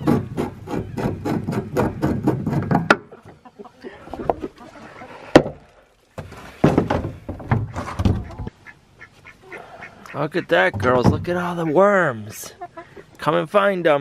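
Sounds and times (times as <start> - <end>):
wooden and metal knocks: 0.0 - 3.1, 6.2 - 8.5, 10.7 - 11.4.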